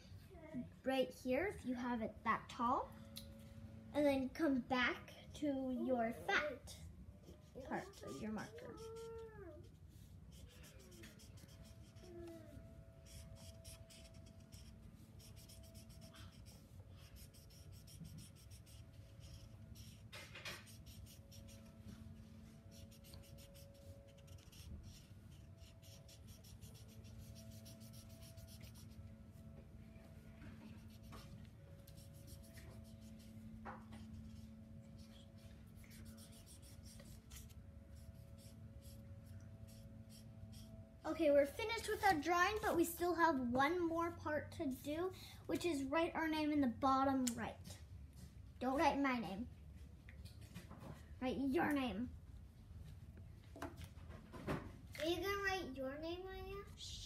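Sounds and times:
faint steady hum: 0.0 - 57.0
marker scratching on paper: 7.4 - 12.1, 13.0 - 21.8, 22.7 - 29.0, 30.7 - 39.0.

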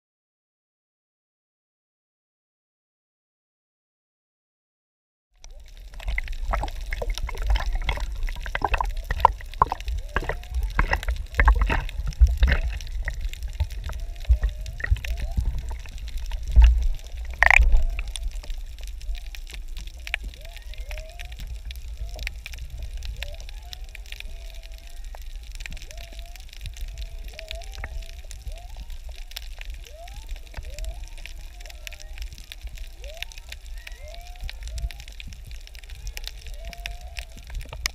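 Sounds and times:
muffled underwater hush: 5.4 - 37.9
seawater splashing and sloshing: 5.8 - 18.4.

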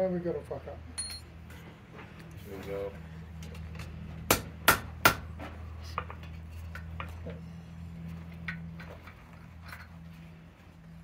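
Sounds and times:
low steady hum: 0.0 - 11.0
hammer striking steel on anvil: 1.0 - 1.3
metallic clinks on anvil: 1.0 - 1.3.

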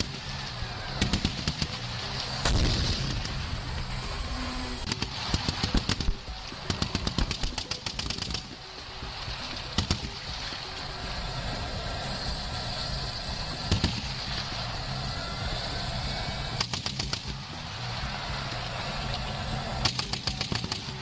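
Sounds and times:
tanks rumbling: 0.0 - 21.0
machine-gun fire: 1.0 - 3.3, 4.8 - 8.5.

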